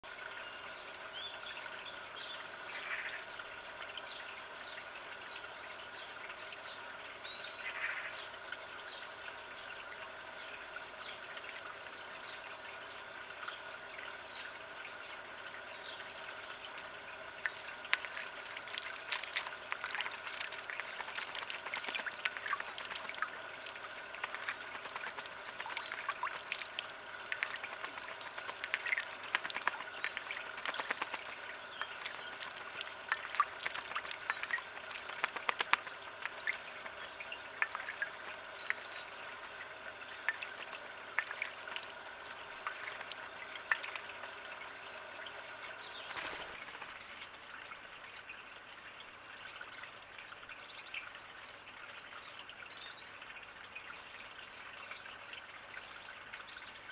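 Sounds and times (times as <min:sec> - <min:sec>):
bird splashing in water: 0:16.3 - 0:47.3.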